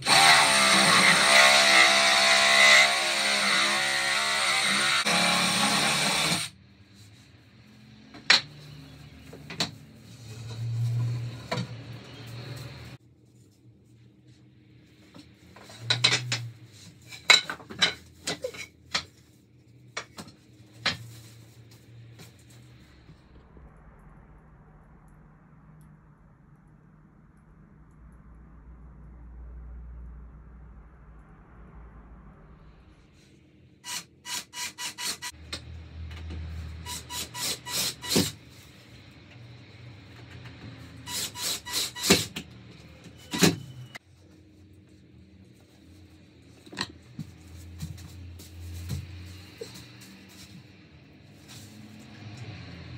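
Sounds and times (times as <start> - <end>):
low hum: 19.4 - 33.8.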